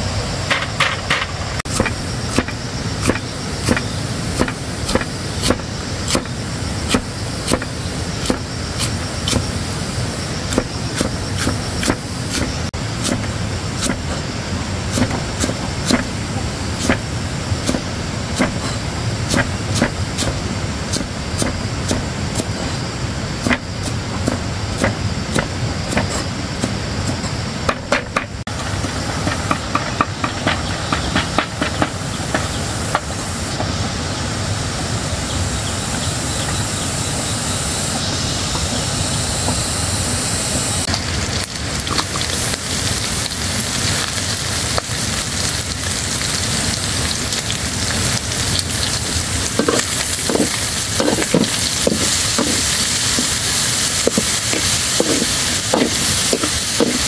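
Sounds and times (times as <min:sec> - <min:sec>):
meat sizzling in a wok: 0:01.7 - 0:27.1, 0:40.9 - 0:57.0.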